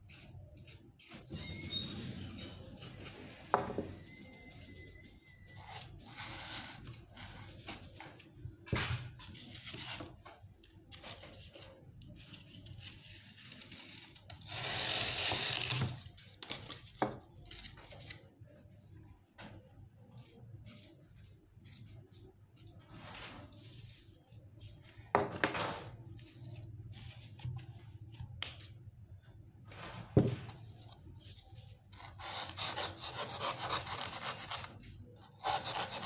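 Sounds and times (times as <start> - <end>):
knife sawing through foam: 32.0 - 34.7, 35.3 - 36.0.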